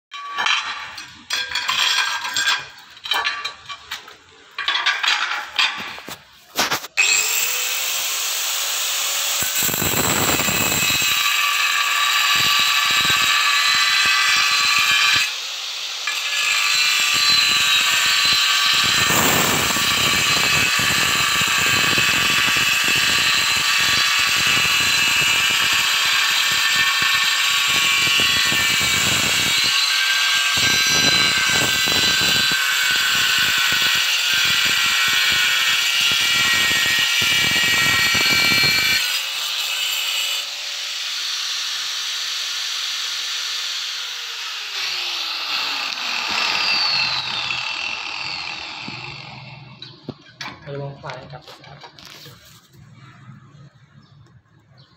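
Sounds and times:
blade grinding into tile: 0.2s - 40.5s
angle grinder whine: 5.9s - 39.2s, 40.4s - 50.6s.

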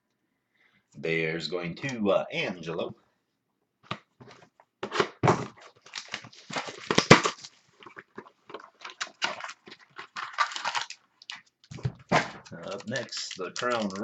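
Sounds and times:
trading cards rustling: 5.6s - 7.6s, 8.6s - 14.0s.

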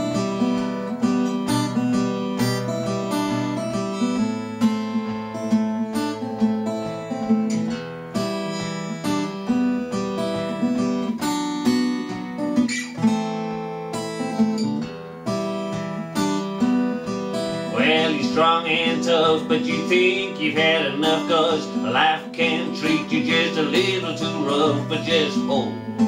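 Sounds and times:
acoustic guitar playing: 0.0s - 26.0s
man singing: 17.7s - 26.0s.

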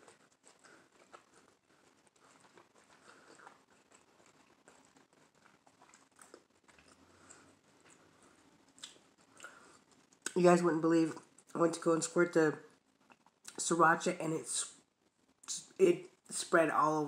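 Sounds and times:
person chewing food: 0.0s - 10.4s, 12.9s - 13.6s.

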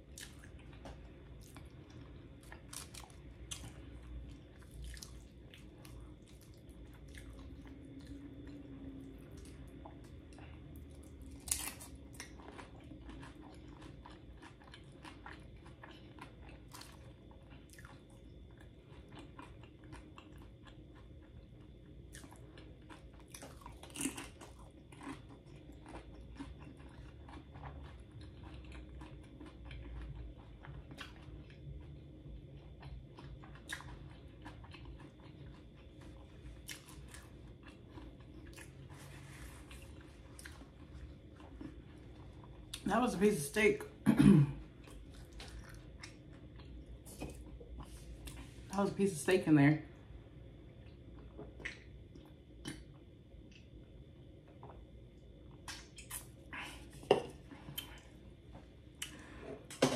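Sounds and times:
person chewing wet clicks: 0.1s - 21.4s, 32.6s - 38.9s, 44.8s - 48.4s, 50.8s - 53.7s, 54.4s - 56.4s
loud chewing crunches: 11.2s - 18.0s, 22.1s - 31.2s.

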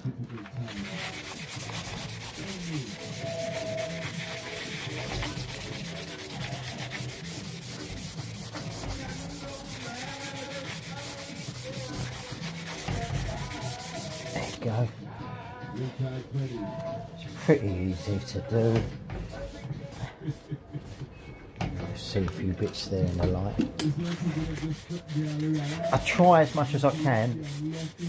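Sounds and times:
abrasive pad rasping on slate: 0.8s - 14.6s.

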